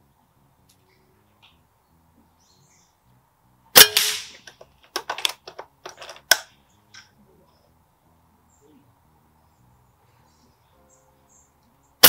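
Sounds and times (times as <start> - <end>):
air rifle shot: 3.8 - 4.5.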